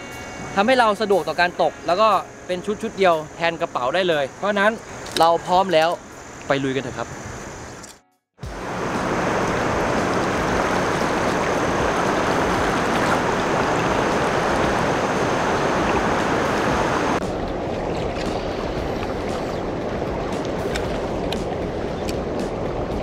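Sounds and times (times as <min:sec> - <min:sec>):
river water rushing and splashing: 0:08.4 - 0:23.0.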